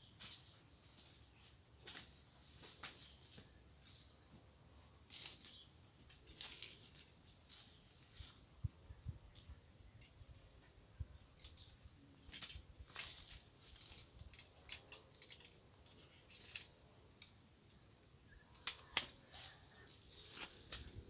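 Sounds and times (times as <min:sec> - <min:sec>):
leaves and twigs rustling: 0:00.0 - 0:21.0
twigs snapping: 0:18.4 - 0:20.9.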